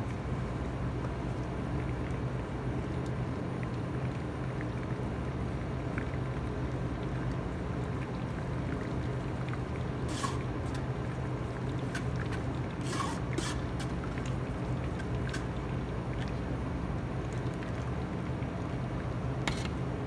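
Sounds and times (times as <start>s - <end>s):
steady low hum: 0.0s - 20.0s
soup pressed through strainer: 10.0s - 11.0s, 11.8s - 14.3s
ladle scraping on mesh: 10.1s - 10.8s, 12.8s - 14.0s.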